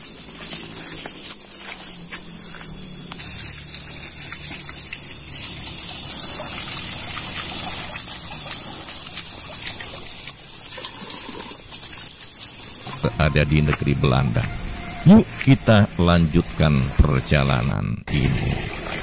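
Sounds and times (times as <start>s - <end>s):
water trickling and gushing: 3.1s - 14.3s, 18.1s - 19.0s.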